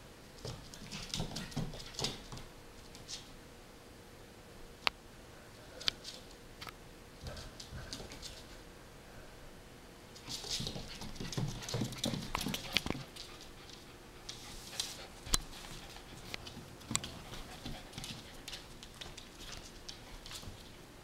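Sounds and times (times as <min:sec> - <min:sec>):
dog claws clicking on wooden floor: 0:10.2 - 0:20.7.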